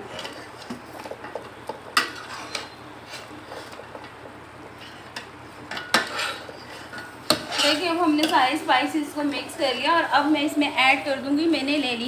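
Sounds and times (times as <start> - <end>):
metal spoon scraping a pot: 2.0 - 3.8, 4.8 - 8.4.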